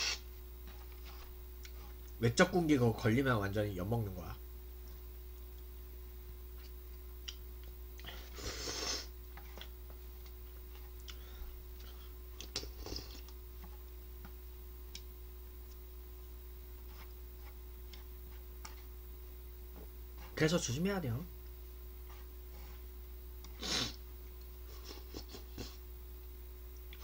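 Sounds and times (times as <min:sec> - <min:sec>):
faint hum: 0:00.0 - 0:27.0
person slurping noodles: 0:08.2 - 0:09.1.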